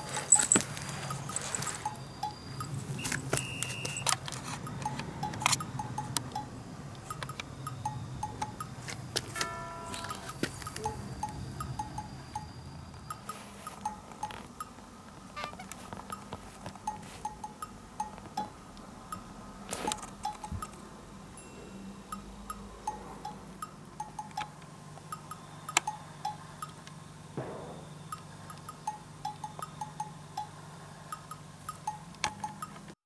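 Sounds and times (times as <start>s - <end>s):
plinking wood-block and chime music: 0.0s - 2.8s, 4.7s - 8.8s, 9.4s - 14.7s, 16.9s - 18.5s, 21.4s - 26.8s, 28.0s - 30.6s, 31.2s - 32.8s.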